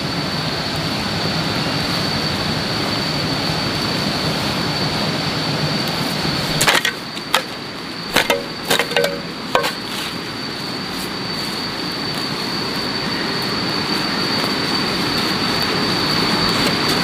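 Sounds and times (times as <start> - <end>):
constant high whine: 0.0 - 17.0
noisy background: 0.0 - 17.0
sharp ringing knocks: 8.1 - 9.8.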